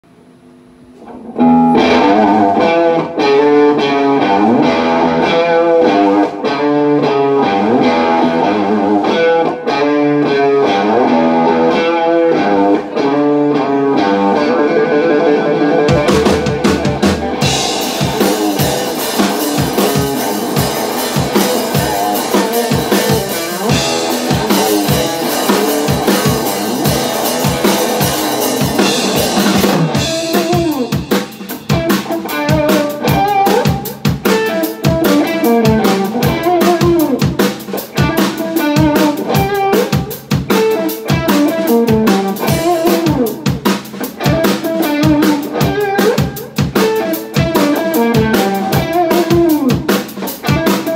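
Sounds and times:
electric guitar: 0:00.1 - 0:50.9
drum kit groove: 0:15.6 - 0:50.9.

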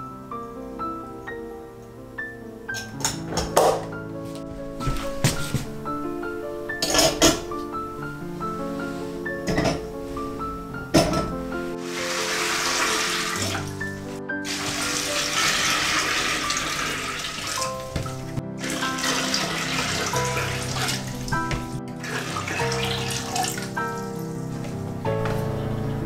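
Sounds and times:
soft background music: 0:00.0 - 0:26.0
water pouring into a pot: 0:11.8 - 0:13.7, 0:14.5 - 0:17.8, 0:18.6 - 0:21.2, 0:22.0 - 0:23.7.

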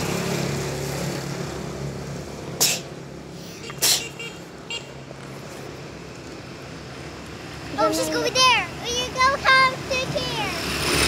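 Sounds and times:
vehicle engine hum: 0:00.0 - 0:11.0
short sharp hisses: 0:02.6 - 0:04.2.

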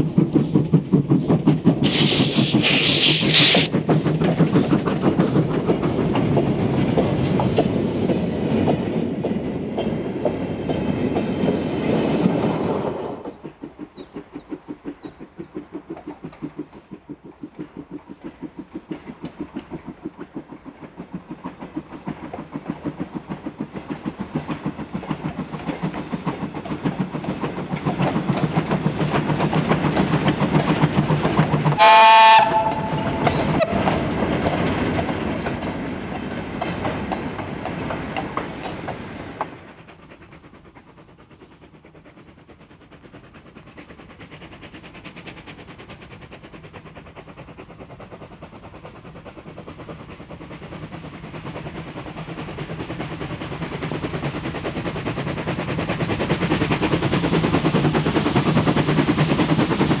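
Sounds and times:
steam locomotive working: 0:00.0 - 1:00.0
train wagons rumbling: 0:00.0 - 1:00.0
steam locomotive whistle: 0:31.8 - 0:33.9.

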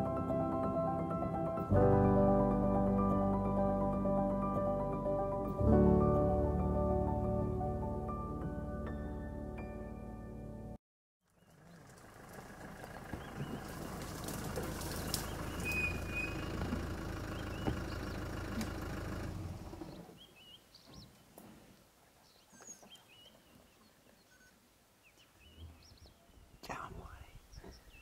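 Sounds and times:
vehicle engine rumbling: 0:11.3 - 0:20.2
birds chirping faintly: 0:11.3 - 0:28.0.

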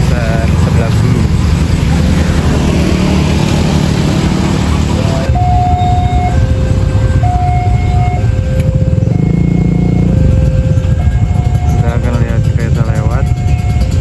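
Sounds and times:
engines idling: 0:00.0 - 0:14.0
road traffic rumble: 0:00.0 - 0:14.0
level crossing warning alarm: 0:05.0 - 0:14.0.

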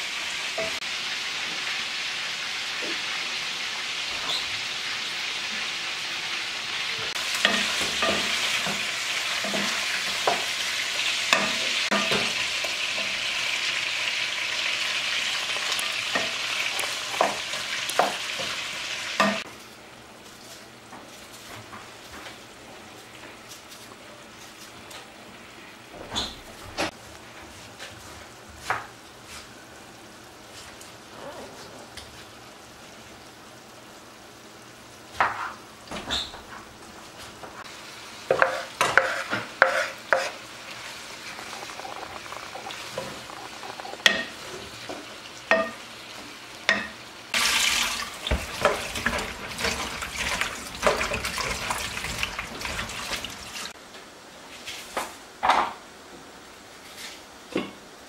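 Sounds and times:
vegetables sizzling in a pan: 0:00.0 - 0:58.0.

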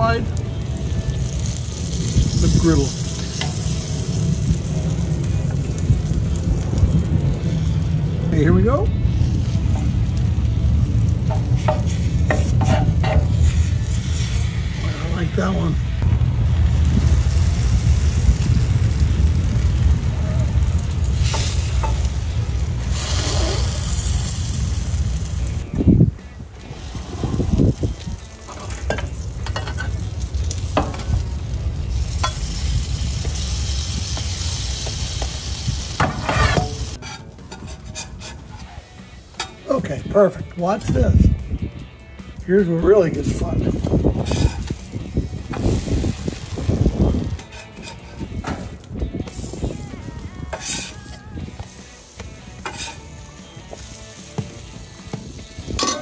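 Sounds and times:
food sizzling on griddle: 0:00.0 - 0:39.8, 0:41.4 - 0:56.0
metal spatula scraping steel: 0:11.3 - 0:15.0, 0:36.1 - 0:38.8, 0:44.2 - 0:44.8, 0:47.4 - 0:48.3, 0:50.5 - 0:51.1, 0:52.6 - 0:53.2
spatula scraping metal griddle: 0:11.3 - 0:15.6, 0:22.9 - 0:24.4, 0:36.0 - 0:39.6, 0:44.1 - 0:48.8, 0:50.5 - 0:54.8.

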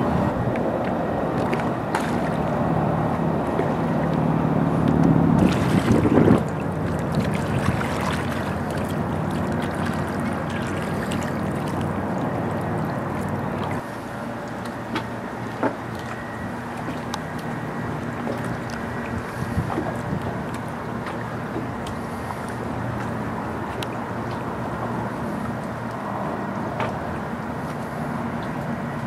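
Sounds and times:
wind buffeting microphone: 0:00.0 - 0:13.8, 0:18.5 - 0:21.7
low steady hum: 0:00.0 - 0:29.0
water lapping: 0:00.0 - 0:29.0.

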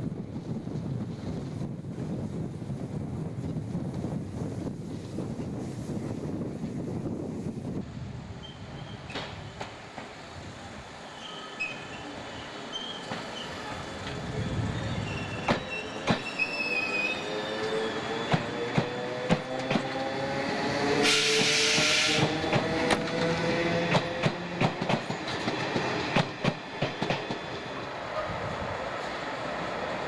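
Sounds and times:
train wheels clicking over rail joints: 0:15.2 - 0:16.5, 0:17.7 - 0:20.1, 0:21.2 - 0:27.6
loud air hiss: 0:21.0 - 0:22.4.

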